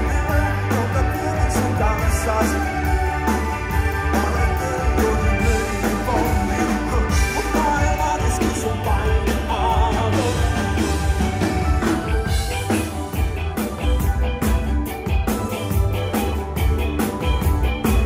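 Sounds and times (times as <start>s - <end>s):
live rock band playing: 0.0s - 18.0s
wavering melodic lead line: 0.0s - 18.0s.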